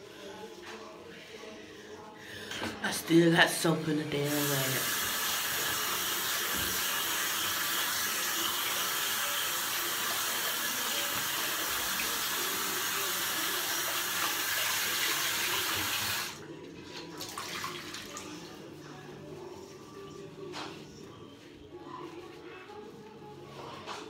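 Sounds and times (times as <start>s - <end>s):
washcloth rinsed under water: 4.1s - 18.6s
tap water running into sink: 4.3s - 16.4s.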